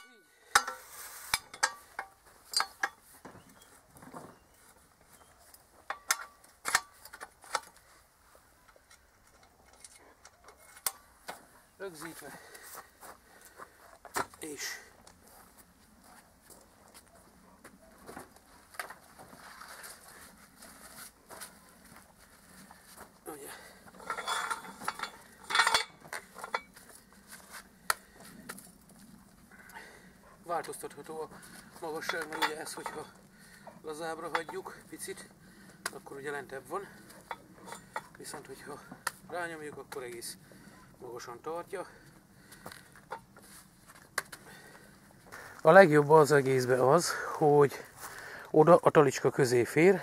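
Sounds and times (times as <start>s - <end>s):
metal clicks and clanks: 0.5s - 3.0s, 5.9s - 7.8s, 8.7s - 11.4s, 23.9s - 26.8s, 31.9s - 33.2s
log scraping on metal sawhorse: 0.5s - 3.1s, 23.8s - 26.8s.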